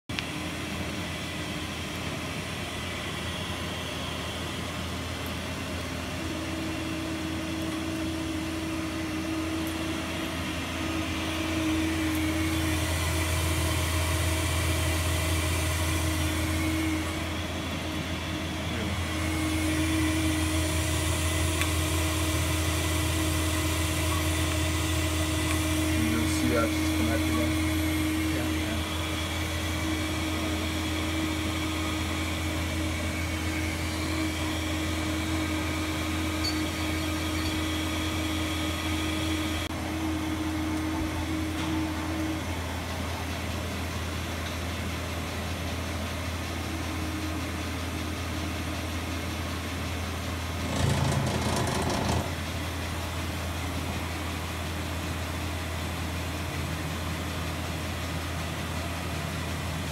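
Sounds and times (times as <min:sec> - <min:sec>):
lathe humming: 0:00.2 - 0:59.9
faint whining tones: 0:02.3 - 0:44.1.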